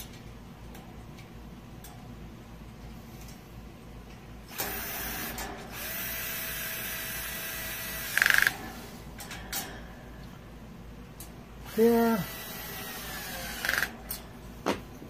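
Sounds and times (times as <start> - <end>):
power screwdriver motor humming: 5.8 - 8.5, 11.7 - 13.9.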